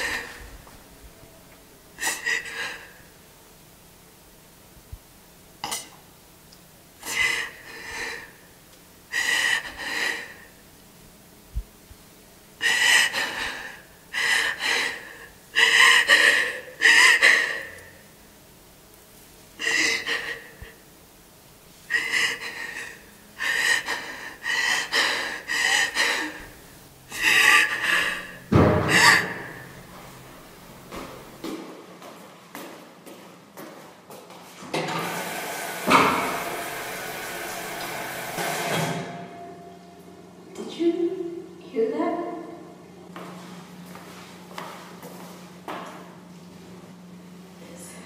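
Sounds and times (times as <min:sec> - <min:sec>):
woman sobbing with gasping breaths: 0:27.1 - 0:29.4.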